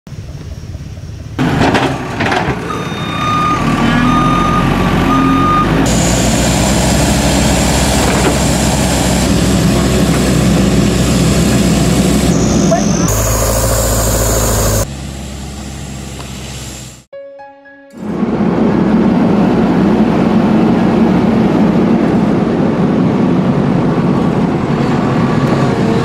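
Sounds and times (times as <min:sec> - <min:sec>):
diesel engines running: 0:00.1 - 0:17.1, 0:18.0 - 0:26.0
high beeping tone: 0:02.7 - 0:05.7.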